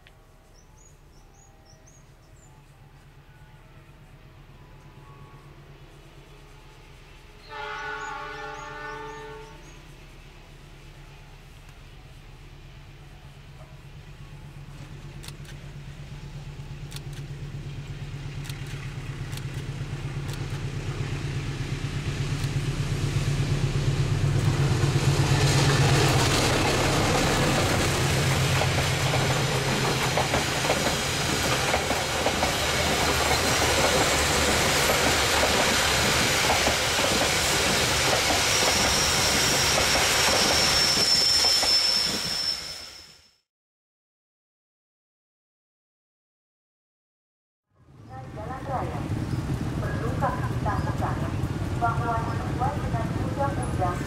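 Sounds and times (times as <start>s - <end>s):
train engine drone: 0.0s - 43.4s, 47.8s - 54.0s
train carriages rushing by: 2.7s - 43.3s, 47.9s - 54.0s
thin high squeal: 38.5s - 43.4s.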